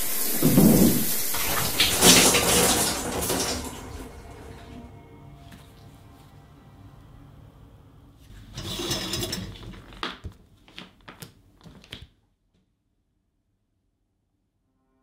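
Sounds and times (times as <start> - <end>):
curtain rings scraping on rail: 8.4 - 10.0.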